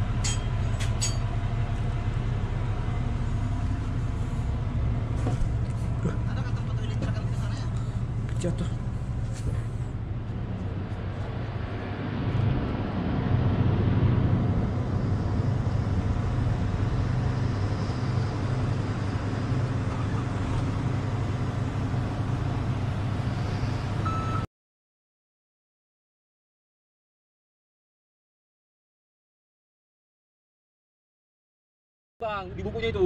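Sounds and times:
diesel engine humming: 0.0s - 24.5s.

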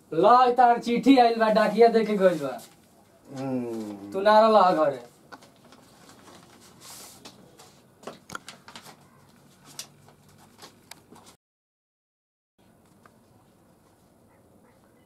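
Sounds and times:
paper rustling and crinkling: 5.0s - 11.4s.

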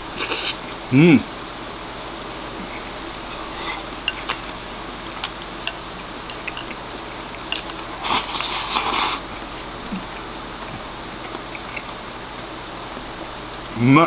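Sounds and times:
man chewing: 0.2s - 0.8s, 2.3s - 13.8s
chopsticks clicking on bowl: 5.2s - 6.8s.

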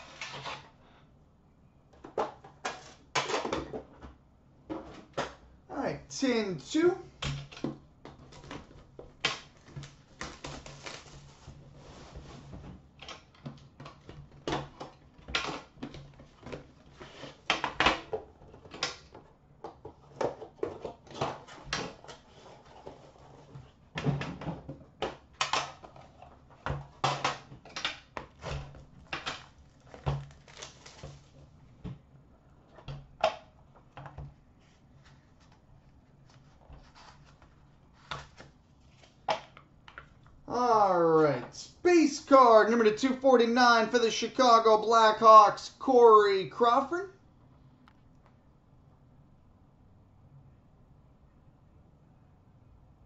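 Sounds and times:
box handled and knocking: 1.9s - 5.4s
plastic wrap crinkling and tearing: 9.6s - 11.5s, 29.0s - 31.4s.

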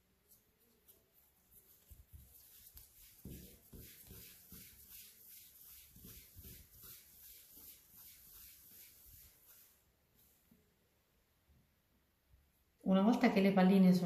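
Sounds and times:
dough swishing on worktop: 0.0s - 10.4s.

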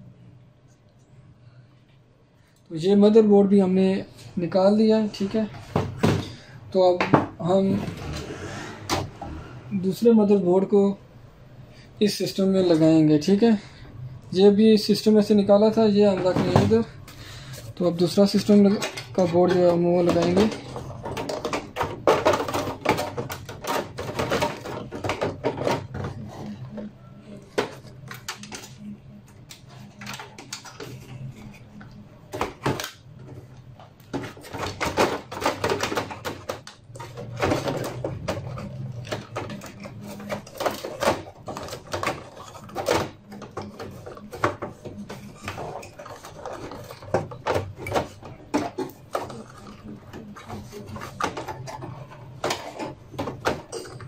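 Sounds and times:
computer parts clattering on metal: 17.7s - 26.6s, 34.1s - 54.0s.

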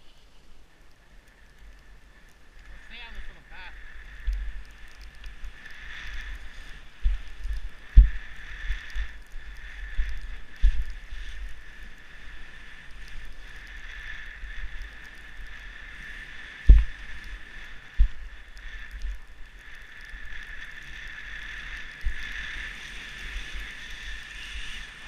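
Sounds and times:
skis hissing through snow: 2.1s - 25.0s
low rumble: 6.2s - 11.7s, 16.6s - 19.4s
low thumps: 16.7s - 17.0s, 18.0s - 18.2s.

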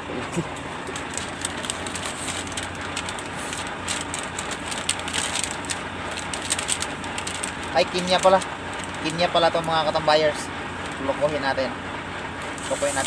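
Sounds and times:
truck running from inside cab: 0.0s - 13.0s
crackles: 0.6s - 9.8s.

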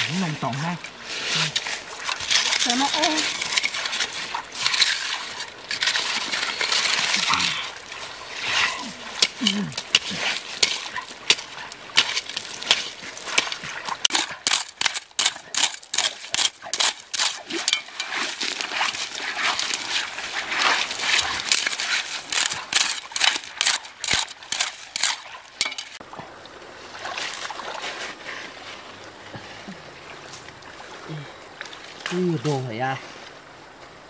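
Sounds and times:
water trickling: 0.0s - 14.3s
gravel and stones scraping: 0.0s - 26.1s, 26.8s - 29.6s.

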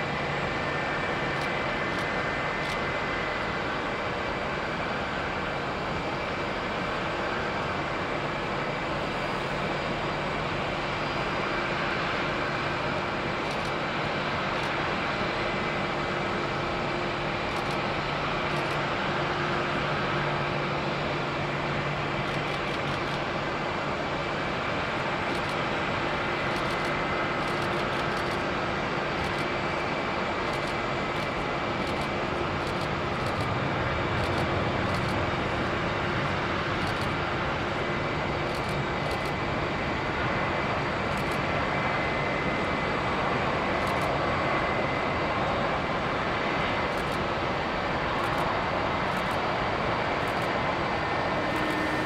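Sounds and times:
jet engine noise: 0.0s - 52.0s
thin high whine: 50.2s - 52.0s.

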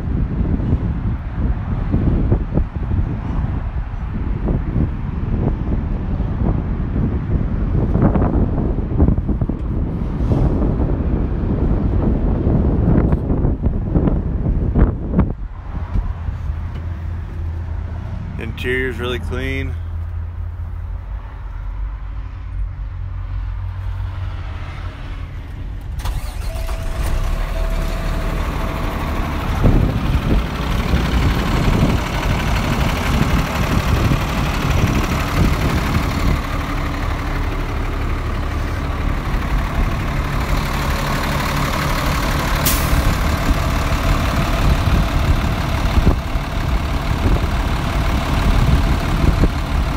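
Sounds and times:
diesel engine idling: 16.1s - 22.1s, 25.7s - 49.9s.

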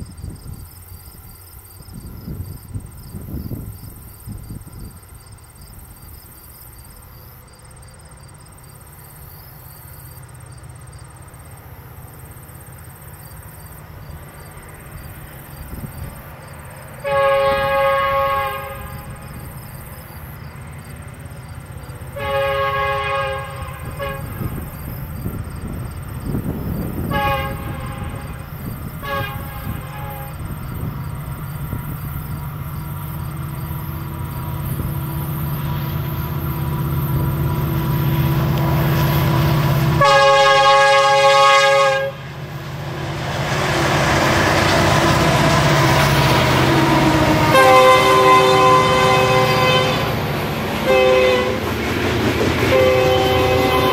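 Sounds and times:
diesel locomotive engines rumbling: 0.0s - 53.9s
locomotive air horn blasts: 17.0s - 19.4s, 22.1s - 24.7s, 27.0s - 30.6s, 37.4s - 51.7s, 52.6s - 53.9s.

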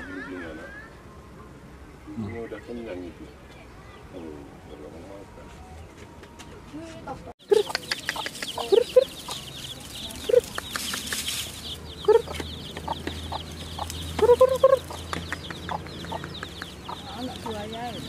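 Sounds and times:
chicks peeping: 7.4s - 18.0s
hen clucking: 7.4s - 18.0s.

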